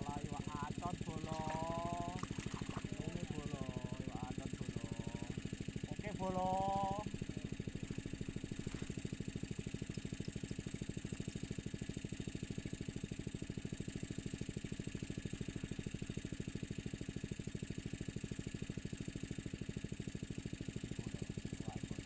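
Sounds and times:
small engine putter: 0:00.0 - 0:22.0.

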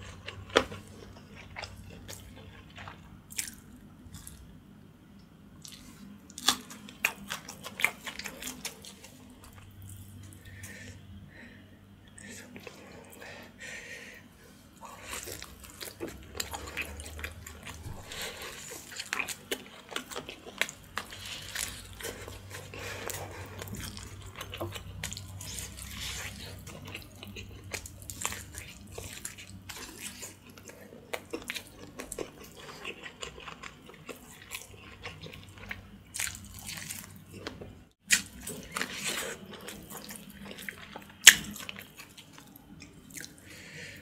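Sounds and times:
wet chewing and smacking: 0:05.6 - 0:10.3, 0:14.8 - 0:43.4.

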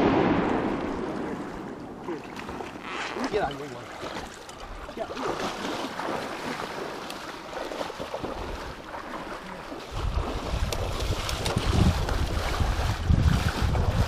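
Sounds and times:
wind buffeting microphone: 0:09.8 - 0:14.0.

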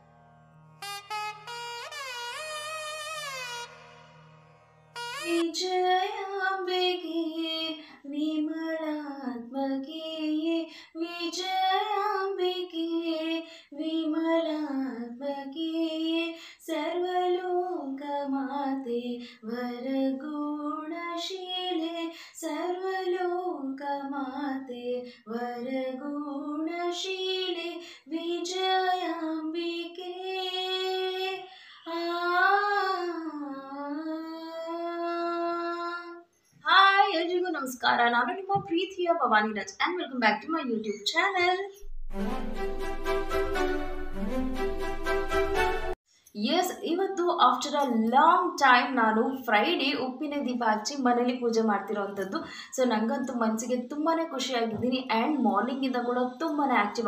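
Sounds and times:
woman singing unaccompanied: 0:05.3 - 0:40.0.

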